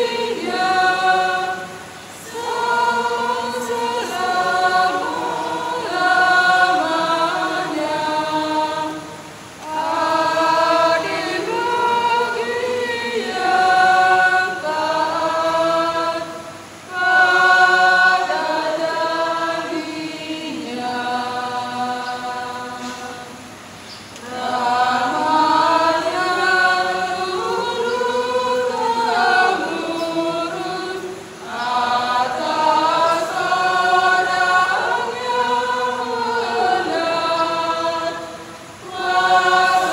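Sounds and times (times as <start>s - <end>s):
choir singing: 0.0s - 23.6s, 24.2s - 39.9s.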